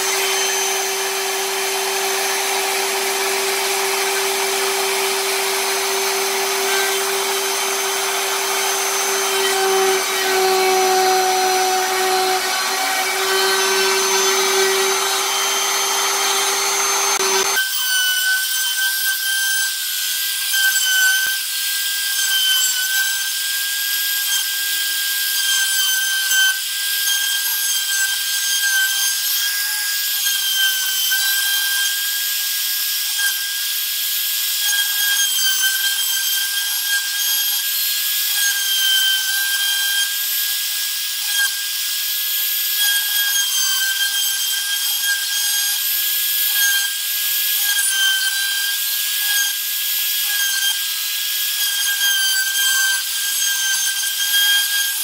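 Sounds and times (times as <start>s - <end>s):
end mill scraping wood: 0.0s - 17.6s
router spindle whining: 0.0s - 17.8s.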